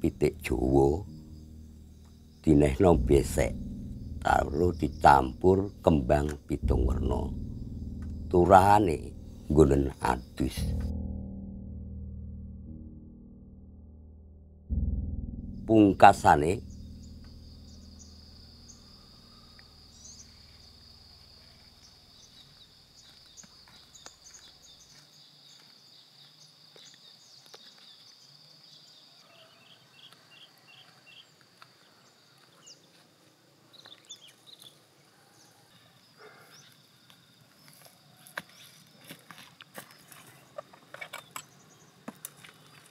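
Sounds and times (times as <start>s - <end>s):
insects droning: 0.0s - 11.4s, 15.2s - 42.9s
low music drone: 0.0s - 20.8s
footsteps in dry brush: 21.5s - 28.0s, 37.6s - 40.7s.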